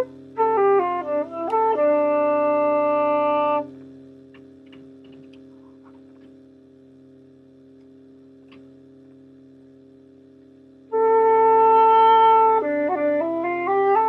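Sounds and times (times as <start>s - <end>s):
steady low hum: 0.0s - 14.0s
faint clicks and taps: 4.3s - 6.4s.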